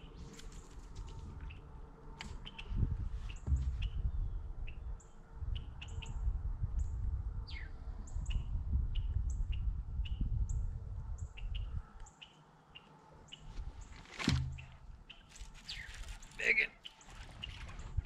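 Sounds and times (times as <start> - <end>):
small birds chirping: 2.3 - 6.2, 11.2 - 18.0
low rumble: 2.6 - 4.6.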